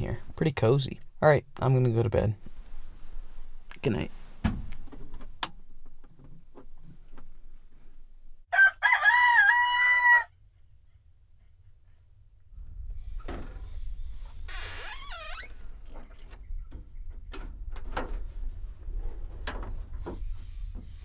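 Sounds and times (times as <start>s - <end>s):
rooster crowing: 8.5s - 10.4s.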